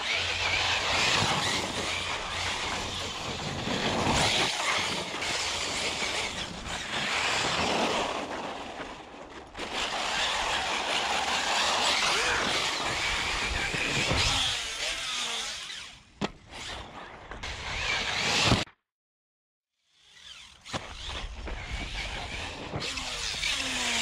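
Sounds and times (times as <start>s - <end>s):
electric motor whining: 9.8s - 16.0s, 20.1s - 24.0s.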